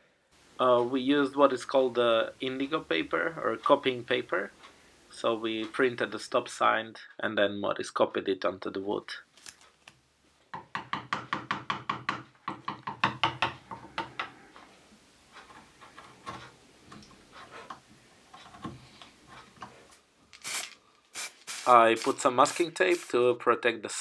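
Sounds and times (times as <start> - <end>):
hand tool tapping on wood: 10.5 - 14.4.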